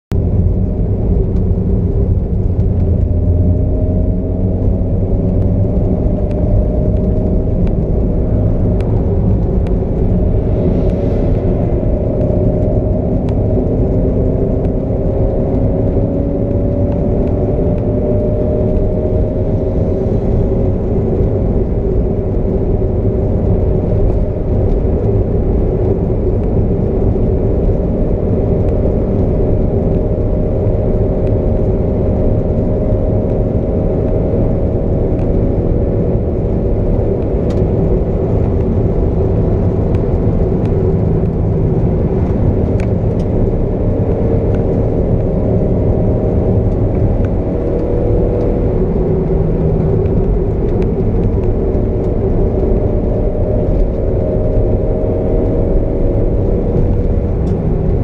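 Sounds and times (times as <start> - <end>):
road and tyre rumble: 0.0 - 58.0
car engine droning: 0.1 - 58.0.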